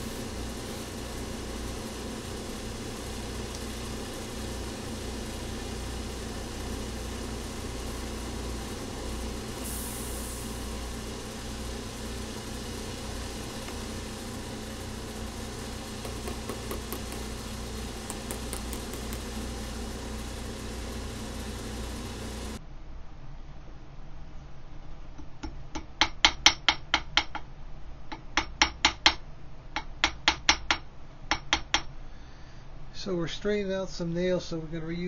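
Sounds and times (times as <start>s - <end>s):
machine humming: 0.0s - 22.6s.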